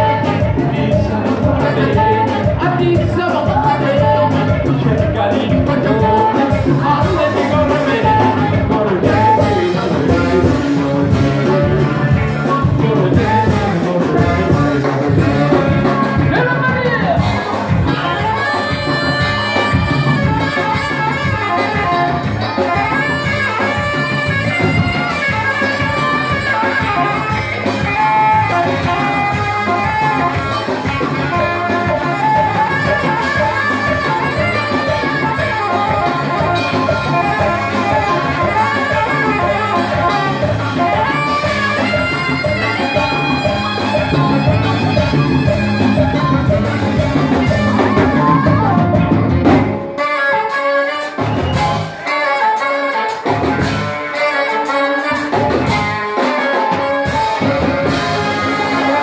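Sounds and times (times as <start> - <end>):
bass: 0.0 - 59.0
conga drums: 0.0 - 59.0
electric guitar: 0.0 - 59.0
keyboard: 0.0 - 59.0
saxophone: 0.0 - 59.0.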